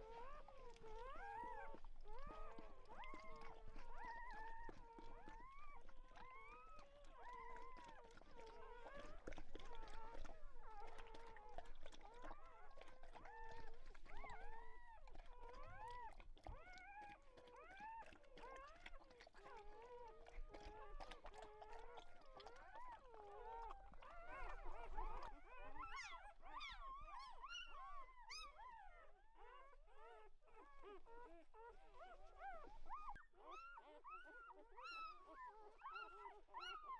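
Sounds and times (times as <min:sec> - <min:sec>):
puppies squeaking and whimpering: 0:22.7 - 0:36.9.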